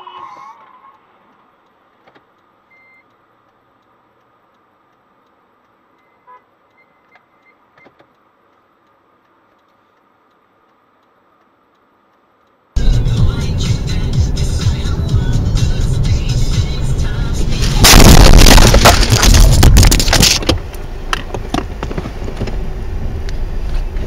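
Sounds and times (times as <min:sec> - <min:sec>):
faint clicks: 0:00.6 - 0:12.7
car cabin hum: 0:12.8 - 0:24.0.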